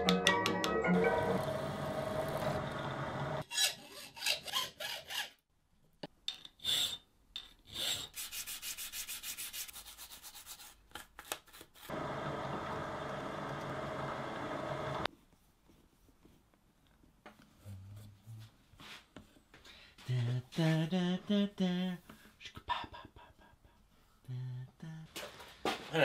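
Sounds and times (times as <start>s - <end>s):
drill press running: 1.2s - 3.4s, 11.9s - 15.1s
hand sanding strokes: 8.1s - 10.8s.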